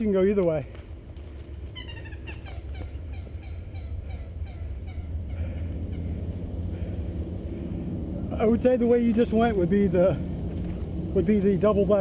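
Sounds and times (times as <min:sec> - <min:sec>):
rapid waterfowl calls: 0:01.7 - 0:07.0.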